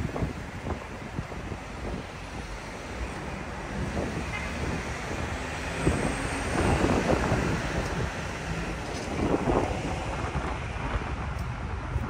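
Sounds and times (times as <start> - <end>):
road traffic: 0.0 - 12.0
wind buffeting microphone: 0.0 - 12.0.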